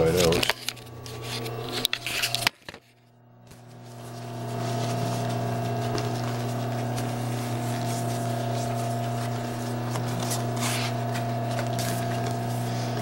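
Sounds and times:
steady electric hum: 0.0s - 13.0s
seat cover rustling: 3.6s - 13.0s.

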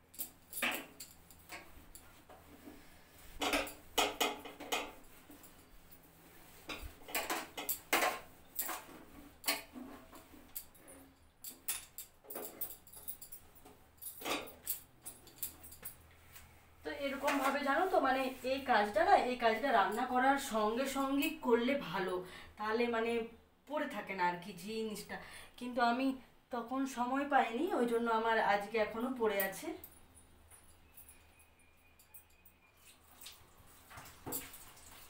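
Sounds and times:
light metallic clinks: 0.0s - 2.2s, 6.7s - 16.2s, 29.4s - 33.0s
cloth scrubbing steel stove top: 17.0s - 19.0s.

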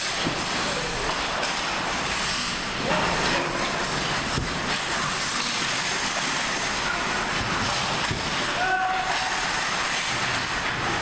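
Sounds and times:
skates scraping ice: 0.0s - 11.0s
faint distant shouts: 8.5s - 9.5s.

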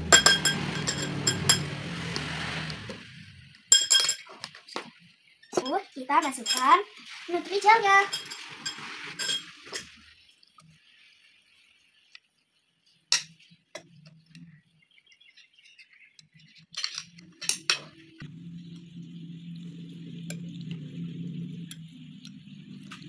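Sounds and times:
metal spoons clinking against glass: 0.1s - 1.8s, 3.7s - 4.5s, 5.5s - 6.9s, 8.0s - 10.0s.

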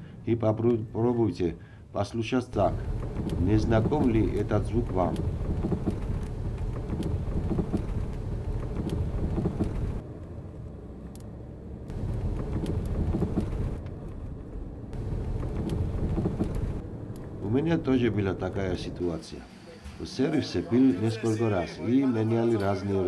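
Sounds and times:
low road rumble: 2.5s - 20.2s
suspension clunking: 2.6s - 10.0s, 11.9s - 17.4s.

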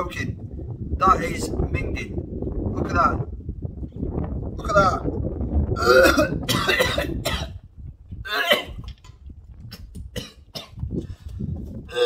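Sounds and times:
man gagging and coughing: 5.8s - 7.6s, 8.2s - 8.8s, 9.7s - 10.8s.

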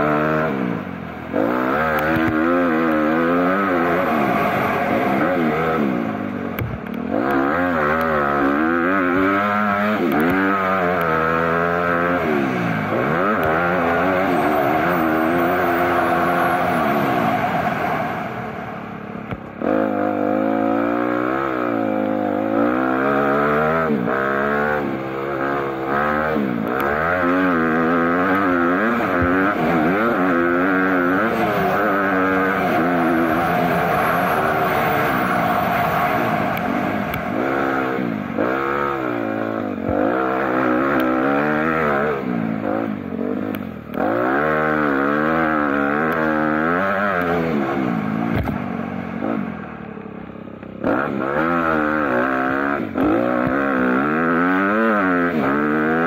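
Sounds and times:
engine revving hard: 7.1s - 18.9s, 19.6s - 48.6s.

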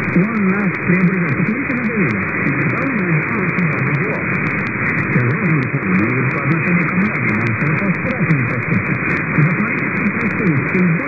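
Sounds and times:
faint clicks: 0.0s - 11.0s
steady radio hiss: 0.0s - 11.0s
weak voice speaking on radio: 0.1s - 4.3s, 5.1s - 11.0s.

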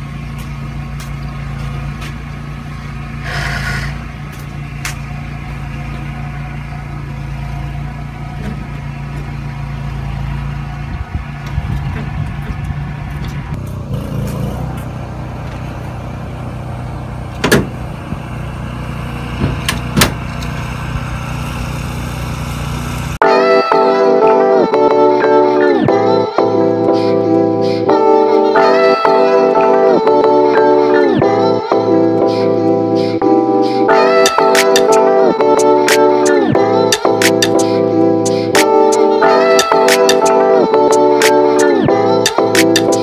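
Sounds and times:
engine idling: 0.0s - 23.2s.

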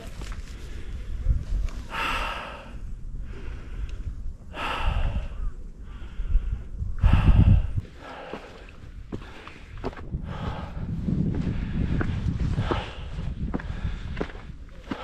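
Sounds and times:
person breathing hard: 1.9s - 15.0s.

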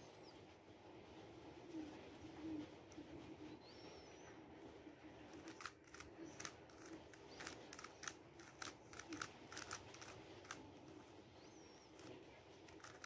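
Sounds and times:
puzzle cube plastic clicks: 5.4s - 10.6s, 12.7s - 13.0s.

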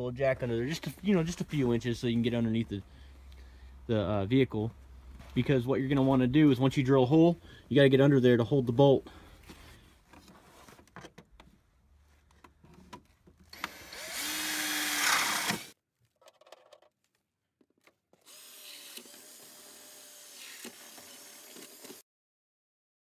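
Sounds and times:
cordless drill running: 13.5s - 15.8s, 18.3s - 22.0s.

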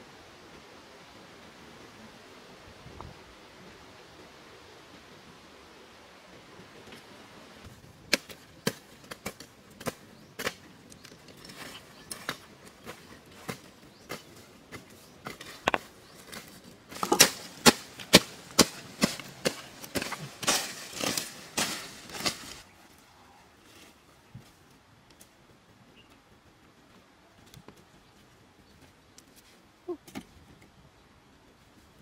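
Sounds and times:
hand tools striking ground: 8.1s - 22.6s
brush scraping and rustling: 8.3s - 23.0s.

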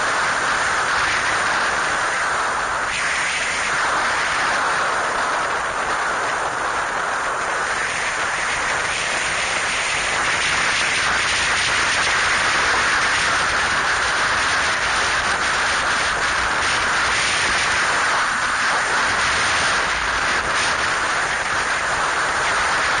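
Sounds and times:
wind rushing on microphone: 0.0s - 23.0s.

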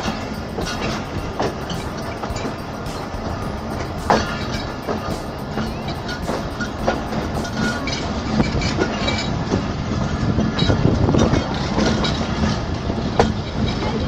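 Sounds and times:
train running noise: 0.0s - 14.0s
wheels clicking over rails: 0.0s - 14.0s.

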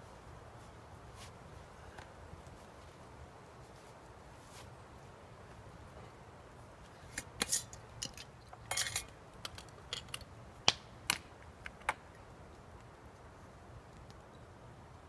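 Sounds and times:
glass and metal clinks: 8.7s - 9.1s.

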